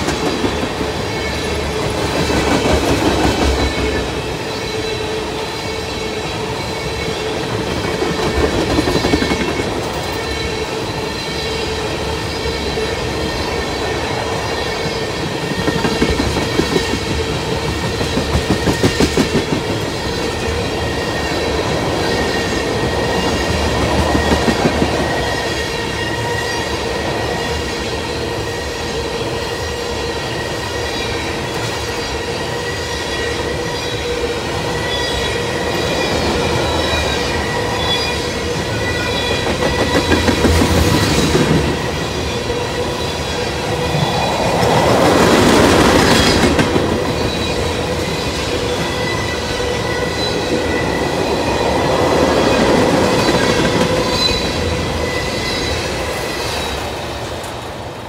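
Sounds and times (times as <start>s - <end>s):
train rumble: 0.0s - 58.0s
train wheels clattering over rail joints: 39.1s - 41.9s.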